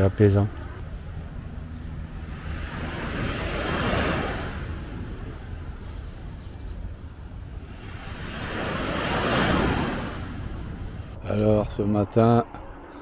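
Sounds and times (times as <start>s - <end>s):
cars passing: 0.0s - 11.2s
steady low rumble: 0.0s - 13.0s
small waves washing: 0.9s - 11.2s.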